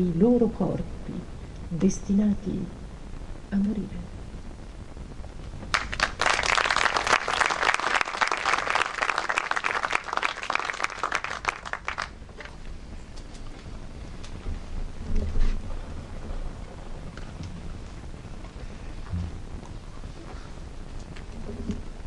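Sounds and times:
scattered claps: 0:05.6 - 0:12.6
audience applauding: 0:05.7 - 0:12.6.

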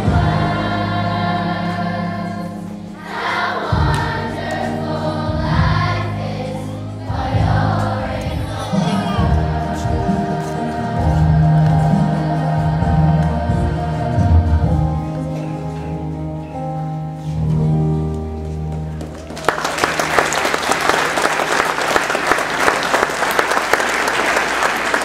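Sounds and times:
children's choir singing: 0:00.0 - 0:15.8
musical accompaniment: 0:00.0 - 0:25.0
audience applauding: 0:19.0 - 0:25.0.

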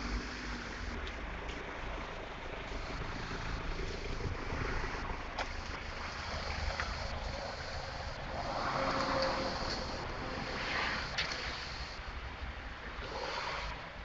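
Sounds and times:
outdoor rushing noise: 0:00.0 - 0:14.0
faint clicks: 0:11.1 - 0:11.9.

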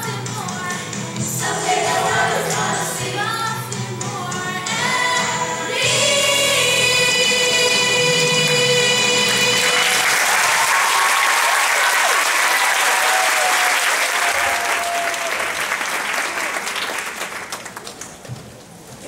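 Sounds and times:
audience applauding: 0:09.3 - 0:18.3
audience cheering: 0:09.6 - 0:16.8.

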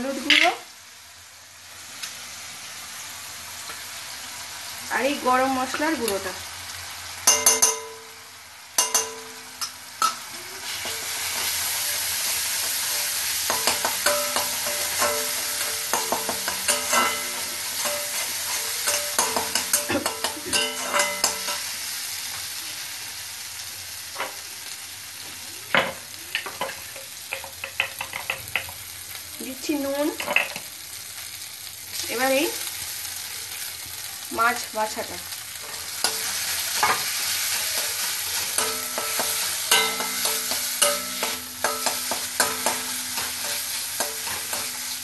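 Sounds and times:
paste sizzling in oil: 0:00.0 - 0:45.0
metal spatula scraping pan: 0:10.0 - 0:21.7, 0:35.6 - 0:45.0.

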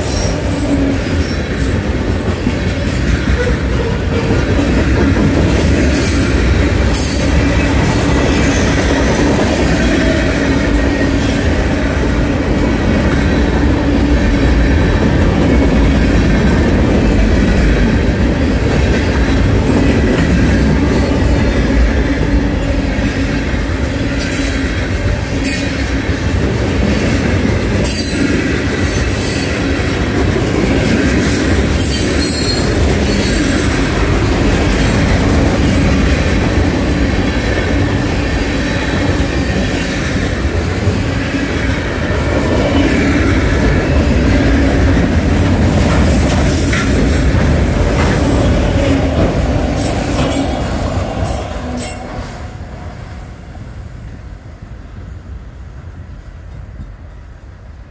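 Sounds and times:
wheels squealing on rail: 0:00.0 - 0:01.8, 0:02.9 - 0:11.8, 0:23.8 - 0:26.3, 0:27.8 - 0:30.0, 0:30.7 - 0:36.3, 0:40.9 - 0:52.7
train wheels rumbling on rails: 0:00.0 - 0:57.9.

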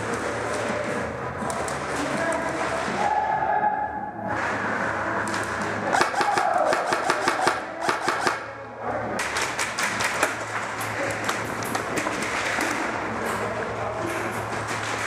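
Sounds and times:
airsoft guns firing in bursts: 0:05.9 - 0:08.5.

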